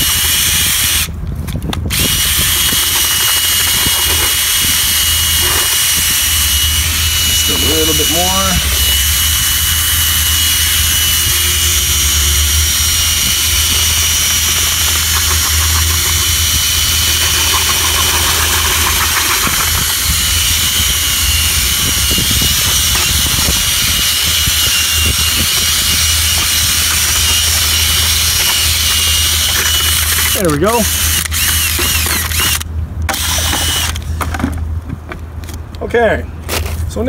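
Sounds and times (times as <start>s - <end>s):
drill mixer motor whine: 0.0s - 1.1s, 1.9s - 34.0s
mortar churning in bucket: 13.8s - 21.1s.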